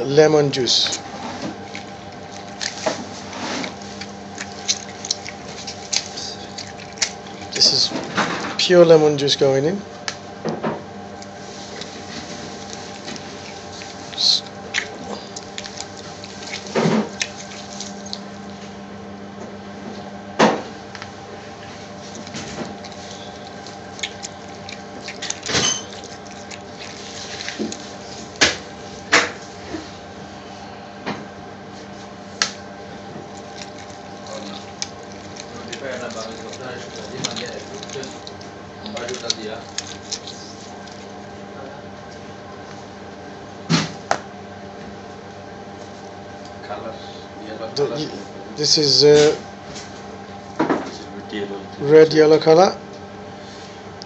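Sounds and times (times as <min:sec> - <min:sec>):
lemon squishing: 0:00.0 - 0:09.4, 0:11.2 - 0:18.7, 0:21.6 - 0:29.8, 0:32.0 - 0:41.5
low kitchen hum: 0:00.0 - 0:54.0
juice dripping into liquid: 0:00.5 - 0:09.2, 0:11.0 - 0:18.7, 0:21.9 - 0:29.4, 0:32.3 - 0:41.4.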